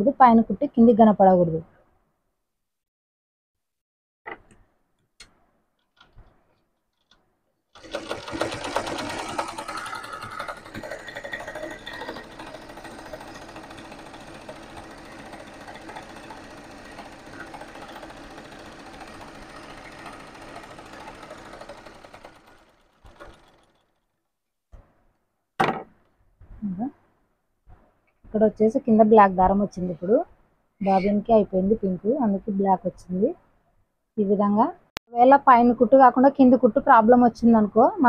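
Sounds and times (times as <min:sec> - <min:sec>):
sewing machine stitching: 0:06.0 - 0:24.1.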